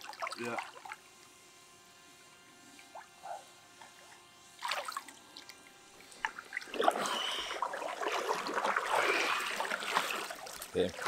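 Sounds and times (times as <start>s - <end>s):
water splashing and sloshing: 0.0s - 1.0s, 3.8s - 11.0s.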